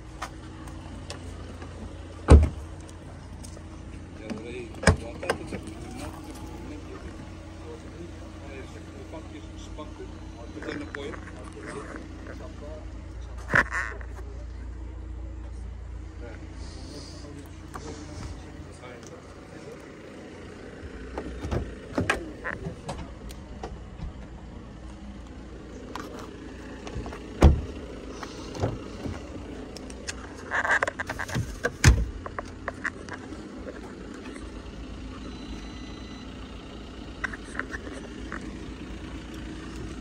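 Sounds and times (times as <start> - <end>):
car door opening: 0.2 - 3.6, 4.2 - 12.3, 21.0 - 24.4, 25.9 - 33.2.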